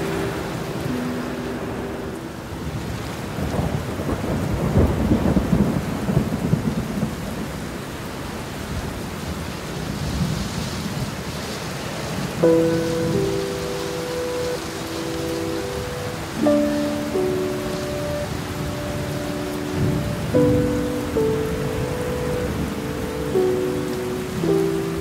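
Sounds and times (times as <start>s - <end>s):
thunder rumbling: 0.0s - 7.7s
heavy rain: 0.0s - 25.0s.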